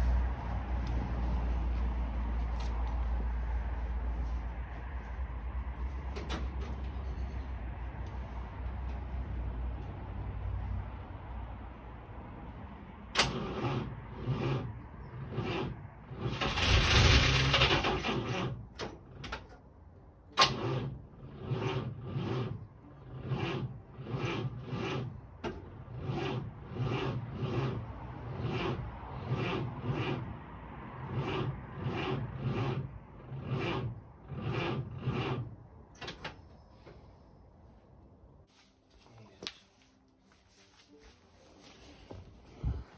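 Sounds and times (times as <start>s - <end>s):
engine cranking by starter motor: 13.1s - 19.5s, 20.4s - 30.4s.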